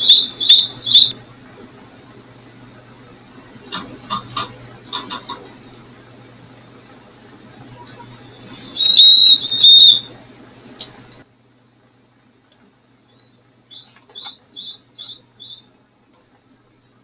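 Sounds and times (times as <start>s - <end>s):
songbird calls: 0.0s - 1.2s, 7.7s - 10.1s, 13.2s - 15.7s
high whistled bird notes: 7.7s - 10.1s.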